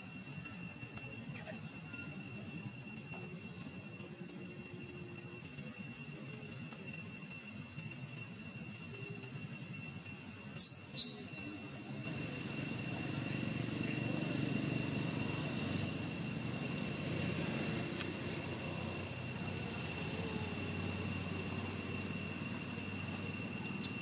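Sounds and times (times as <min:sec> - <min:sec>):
distant engine drone: 0:00.0 - 0:24.0
high-pitched whine: 0:00.0 - 0:24.0.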